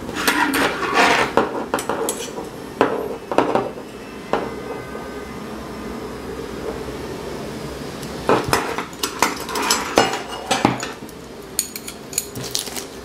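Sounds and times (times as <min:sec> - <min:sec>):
metal plates knocking and clinking: 0:08.3 - 0:11.0.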